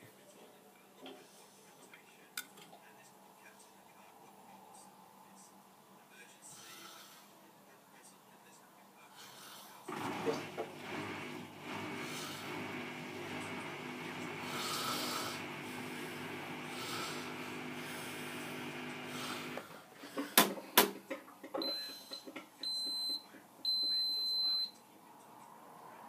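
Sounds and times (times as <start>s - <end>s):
washing machine drum humming: 9.9s - 19.6s.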